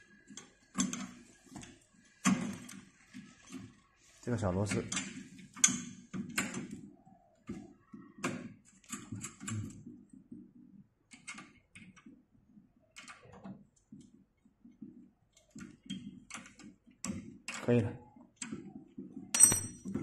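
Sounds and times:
metal screw clicking and scraping: 19.3 - 19.9.

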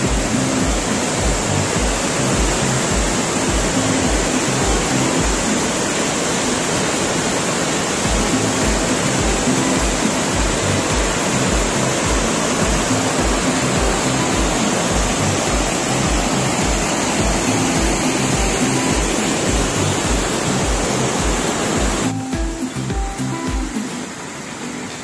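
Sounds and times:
background music with bass beat: 0.0 - 5.6, 8.0 - 24.2
waterfall rushing: 0.0 - 25.0.

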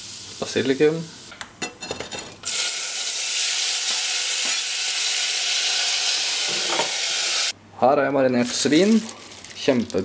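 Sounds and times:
oil sizzling in saucepan: 0.0 - 1.3, 2.4 - 7.6.

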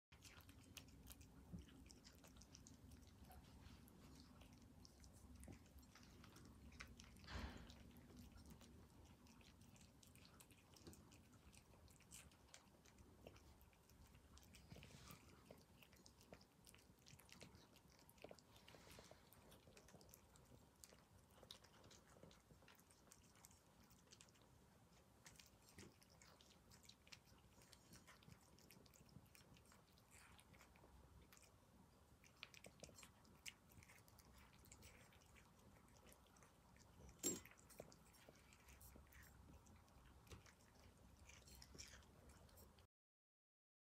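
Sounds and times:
cats chewing and crunching: 0.1 - 42.9.

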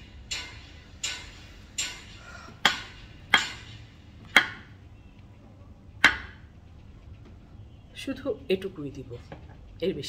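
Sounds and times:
knife chopping on wooden board: 4.3 - 4.7, 6.0 - 6.4.

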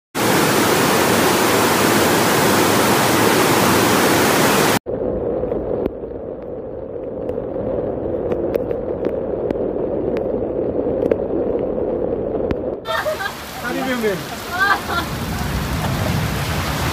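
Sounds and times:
heavy rain: 0.2 - 4.8, 12.7 - 16.9
water rushing down stairs: 12.9 - 16.9.

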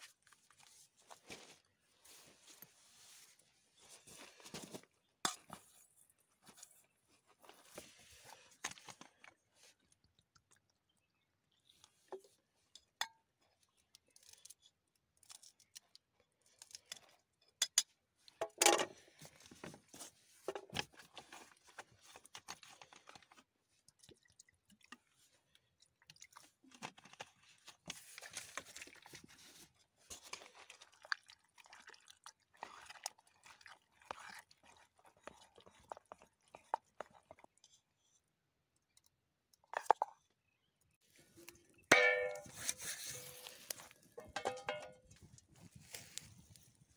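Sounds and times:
spoon stirring crunchy food: 0.0 - 18.4, 20.7 - 46.8
spoon clinking on steel bowl: 41.9 - 42.7, 44.2 - 45.0.

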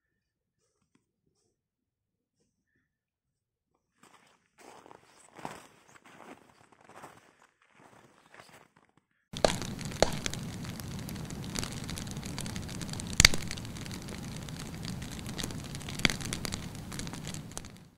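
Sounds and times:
campfire crackling: 9.4 - 17.9
logs popping: 9.4 - 17.9.

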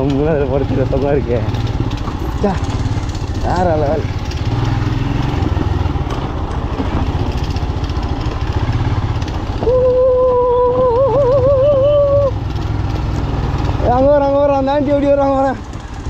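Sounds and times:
motorcycle engine running: 0.0 - 16.0
held high tone: 9.6 - 12.4.

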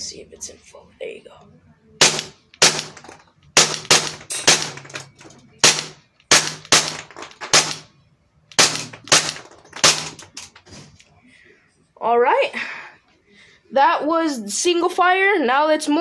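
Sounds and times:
airsoft pistol shots: 2.0 - 5.0, 5.6 - 7.9, 8.5 - 10.3.

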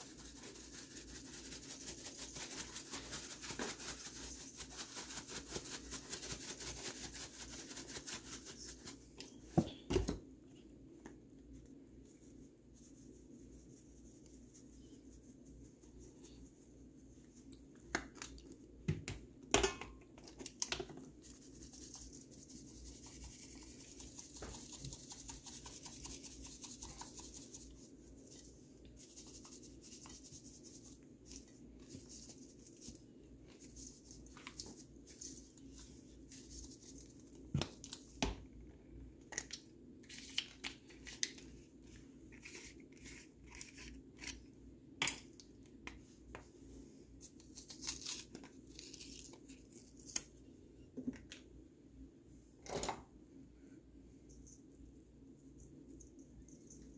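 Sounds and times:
seasonings sprinkling hiss: 0.0 - 9.1.

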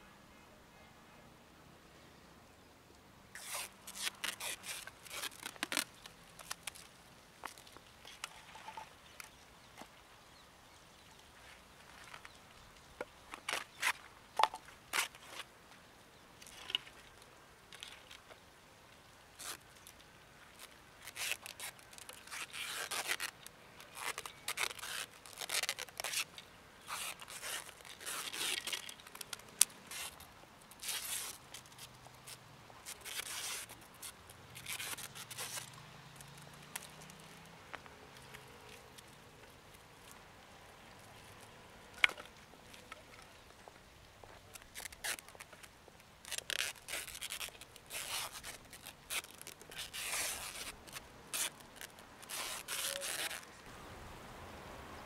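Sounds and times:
paper tearing and crinkling: 3.4 - 6.9, 21.0 - 26.3, 26.9 - 31.4, 32.3 - 35.8, 44.5 - 45.5, 46.2 - 53.5.

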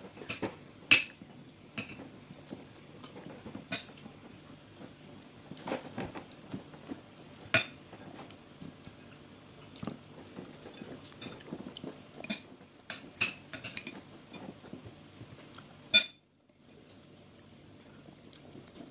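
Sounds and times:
fork clinking on ceramic plate: 15.9 - 16.2.

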